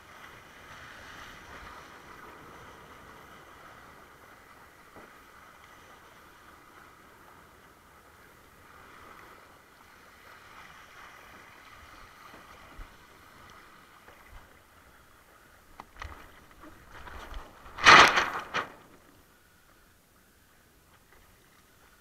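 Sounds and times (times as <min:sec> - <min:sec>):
water rushing past board: 0:15.6 - 0:19.2.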